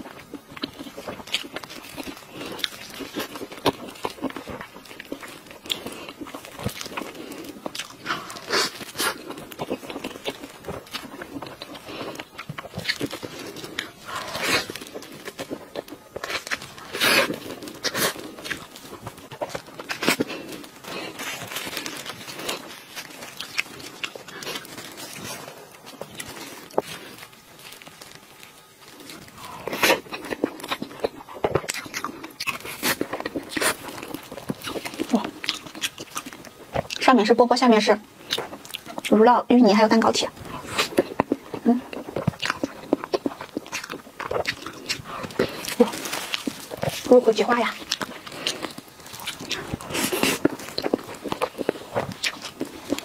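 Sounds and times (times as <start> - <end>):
wet chewing and lip-smacking: 0.0 - 37.4, 38.2 - 53.0.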